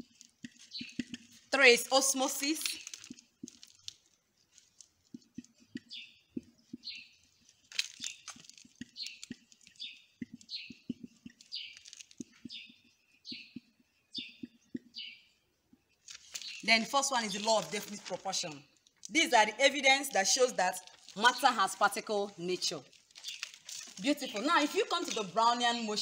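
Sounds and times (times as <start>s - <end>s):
marker squeaking on whiteboard: 0.2s - 15.2s.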